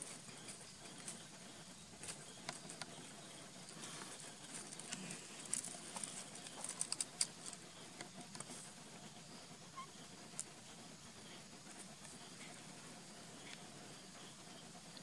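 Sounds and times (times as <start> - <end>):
gravel clicking and rattling: 0.0 - 8.8
faint steady hiss: 0.0 - 15.0.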